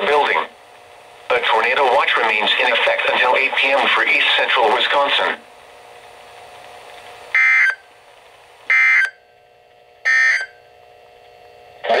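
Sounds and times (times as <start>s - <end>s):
person speaking over radio: 0.0s - 0.5s, 1.3s - 5.4s
faint steady hum: 0.0s - 12.0s
harsh digital data tones: 7.4s - 7.8s, 8.7s - 9.2s, 10.0s - 10.6s.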